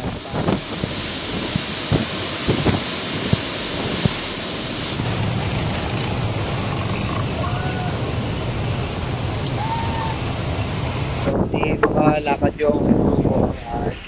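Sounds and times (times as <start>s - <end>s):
heavy rain: 0.0s - 14.0s
strong wind in trees: 0.0s - 14.0s
low rumble on microphone: 4.9s - 14.0s.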